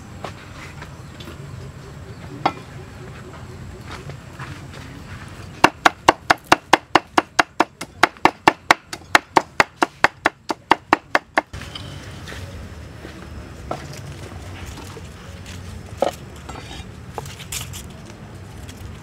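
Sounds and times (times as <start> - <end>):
cleaver chopping on wooden board: 5.6 - 11.6.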